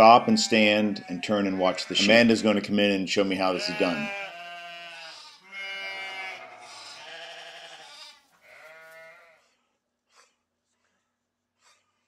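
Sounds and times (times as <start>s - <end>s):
sheep bleating: 0.0s - 9.5s.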